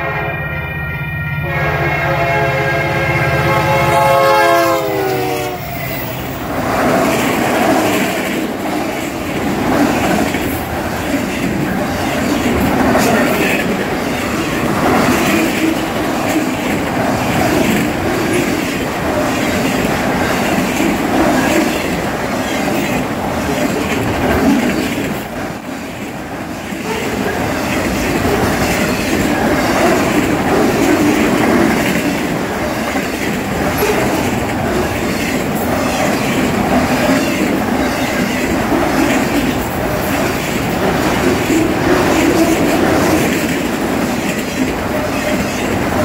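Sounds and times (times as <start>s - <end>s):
train air horn chord: 0.0s - 5.8s.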